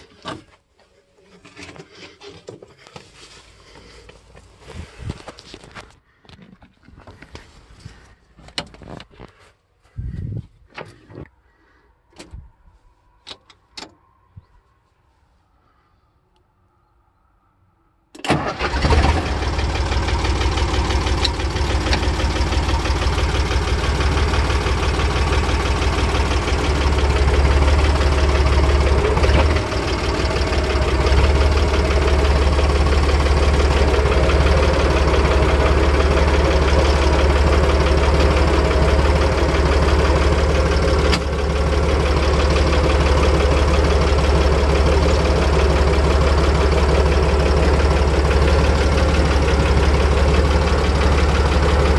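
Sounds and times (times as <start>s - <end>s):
tractor diesel engine: 18.1s - 51.9s.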